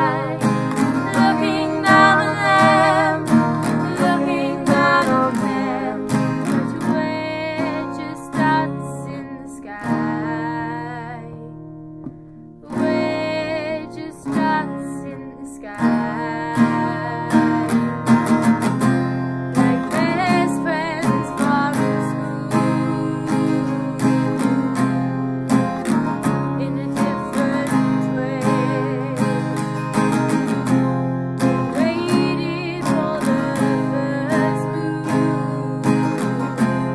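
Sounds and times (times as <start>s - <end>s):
woman singing: 0.0s - 11.6s, 12.6s - 18.4s, 19.5s - 24.9s, 26.0s - 30.7s, 31.6s - 36.9s
acoustic guitar strumming: 0.0s - 36.9s.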